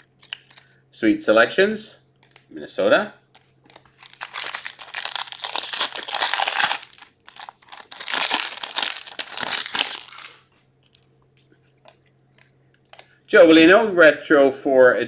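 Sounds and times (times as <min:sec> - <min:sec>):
wrapper tearing and crinkling: 0:00.0 - 0:00.7, 0:03.6 - 0:10.4.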